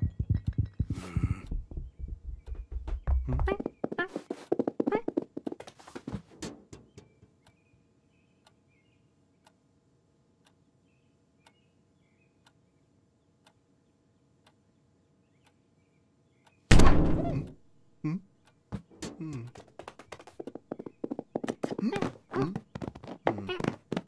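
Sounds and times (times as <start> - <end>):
clock ticking: 0.0 - 4.1.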